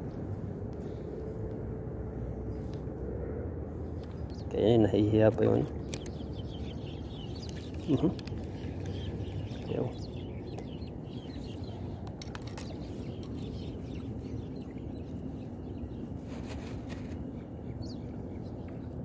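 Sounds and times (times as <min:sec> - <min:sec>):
small birds chirping: 0:03.7 - 0:19.0.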